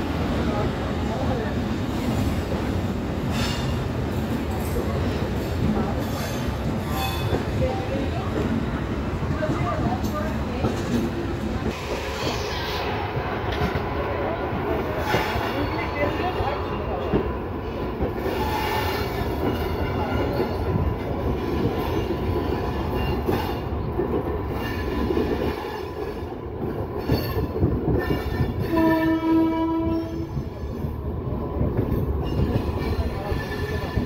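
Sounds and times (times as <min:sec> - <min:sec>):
train wheels rumbling on rails: 0:00.0 - 0:34.0
train horn: 0:28.0 - 0:30.4.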